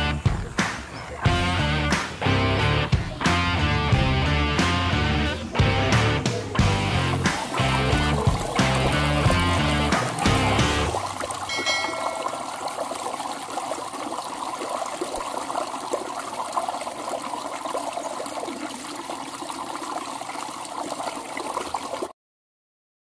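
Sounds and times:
stream water trickling: 0:00.0 - 0:01.4, 0:06.6 - 0:22.1.

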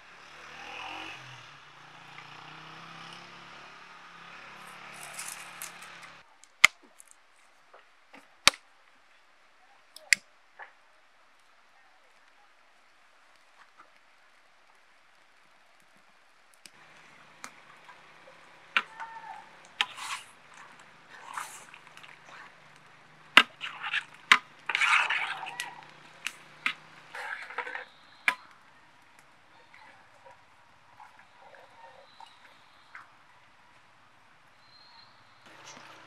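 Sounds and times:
tomatoes squelching: 0:04.4 - 0:07.1, 0:16.6 - 0:33.1.

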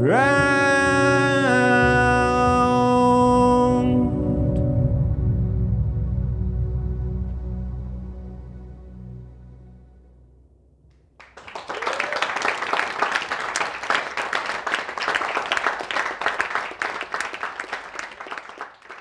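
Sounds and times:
song's last notes: 0:00.0 - 0:10.7
audience applause: 0:11.2 - 0:19.0.

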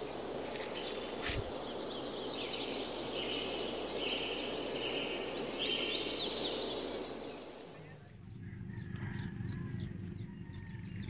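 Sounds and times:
steady background hiss: 0:00.0 - 0:08.6
birds chirping: 0:00.0 - 0:11.0.

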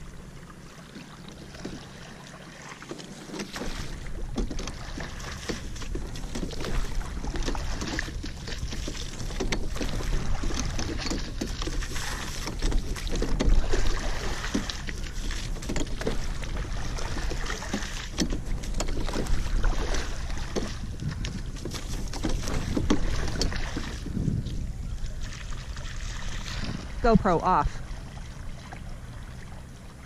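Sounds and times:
oar splashes: 0:00.0 - 0:30.0
water washing along a hull: 0:00.0 - 0:30.0
oars and rigging knocking: 0:00.2 - 0:29.6
wind buffeting microphone: 0:03.9 - 0:30.0.

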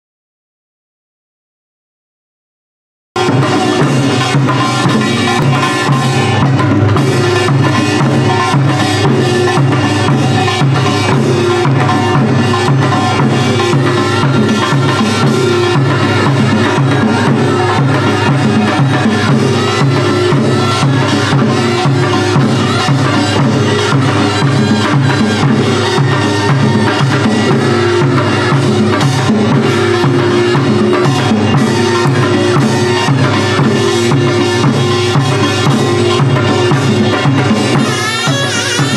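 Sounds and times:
steady drum beat: 0:03.2 - 0:38.9
upbeat fusion music: 0:37.8 - 0:38.9.

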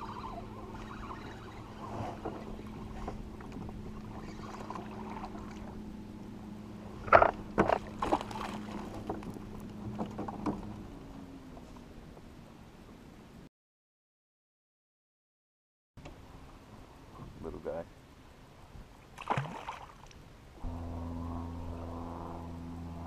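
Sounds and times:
steady low hum: 0:00.0 - 0:12.8, 0:20.4 - 0:23.0
fish thrashing and splashing: 0:07.7 - 0:09.4.

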